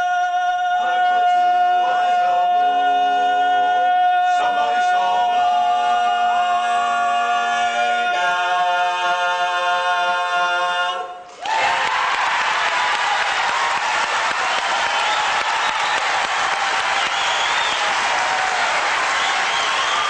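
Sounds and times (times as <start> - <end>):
male quartet singing in harmony: 0.0 - 11.2
applause: 11.3 - 20.0.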